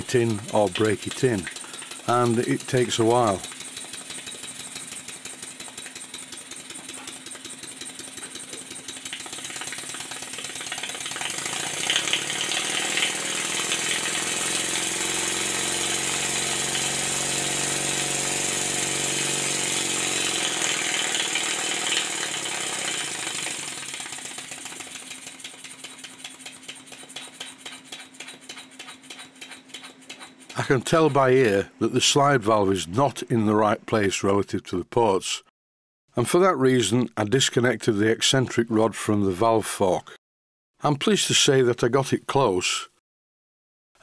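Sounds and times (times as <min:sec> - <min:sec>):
model steam engine exhaust beats: 0:00.0 - 0:31.2.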